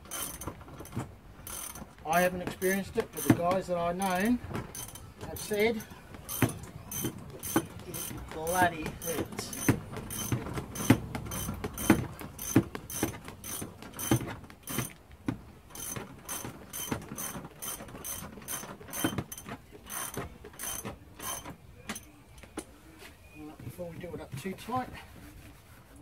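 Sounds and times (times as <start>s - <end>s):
ratchet wrench clicking: 0.0s - 1.8s, 4.7s - 8.1s, 9.0s - 15.0s, 15.7s - 22.1s.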